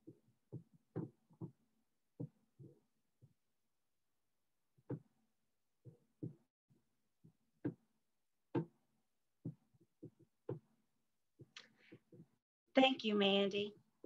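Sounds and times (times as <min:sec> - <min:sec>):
soft thumps and clicks: 0:00.1 - 0:01.6.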